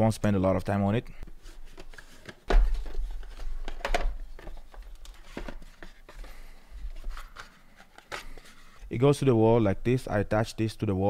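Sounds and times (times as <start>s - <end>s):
cardboard and plastic being handled: 1.3s - 8.8s.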